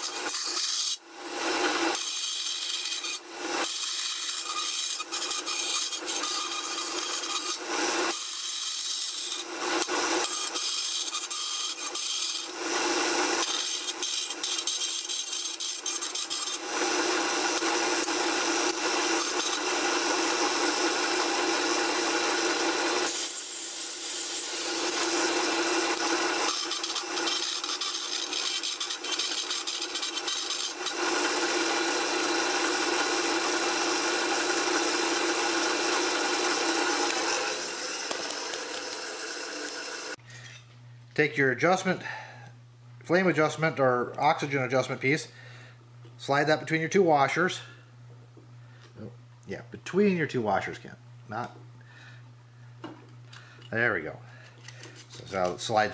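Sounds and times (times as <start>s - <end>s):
band saw blade rasping on metal: 0.0s - 40.6s.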